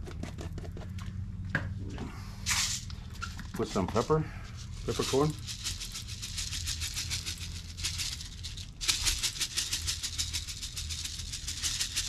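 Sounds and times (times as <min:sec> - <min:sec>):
spice shaker rattling: 0:04.6 - 0:12.0.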